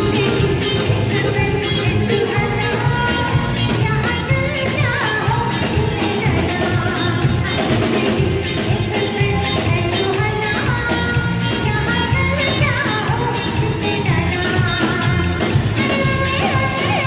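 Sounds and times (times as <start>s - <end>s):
drum kit beat: 0.0s - 17.0s
live band playing: 0.0s - 17.0s
woman singing: 0.0s - 17.0s.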